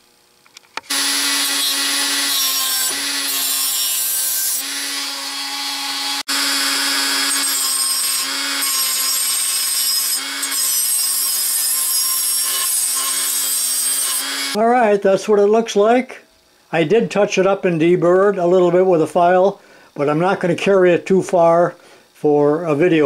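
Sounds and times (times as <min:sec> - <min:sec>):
cutoff wheel cutting brass tubing: 0:00.9 - 0:14.6
rotary tool motor whine: 0:00.9 - 0:14.6.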